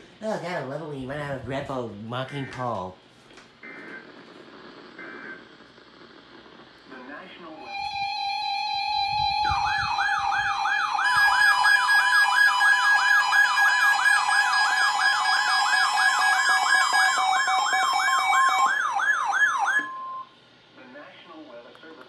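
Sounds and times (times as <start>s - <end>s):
electronic alert siren yelping: 7.6s - 20.3s.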